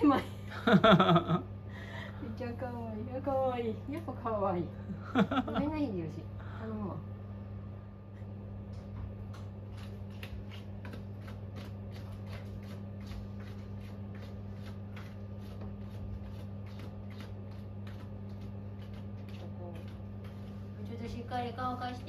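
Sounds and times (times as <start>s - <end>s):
fan humming: 0.0s - 22.0s.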